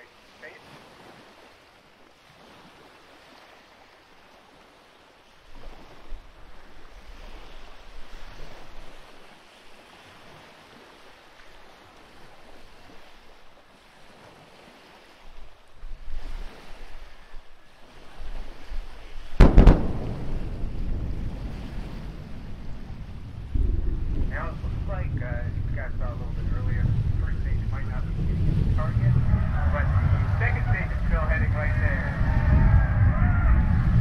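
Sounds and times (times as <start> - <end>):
wind on microphone: 15.8 - 34.0
sonic boom bangs: 19.4 - 34.0.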